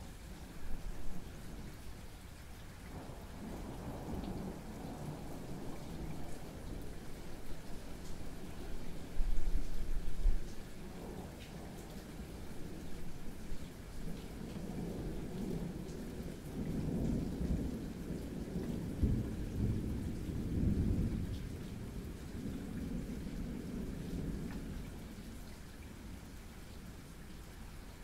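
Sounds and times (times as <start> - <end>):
steady rain: 0.0 - 28.0
rolling thunder: 14.1 - 24.8.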